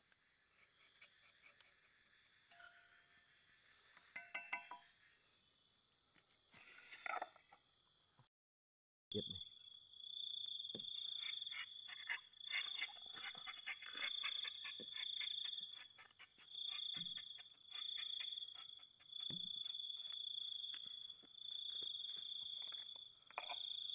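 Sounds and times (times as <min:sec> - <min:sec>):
insects trilling: 0:09.2 - 0:23.9.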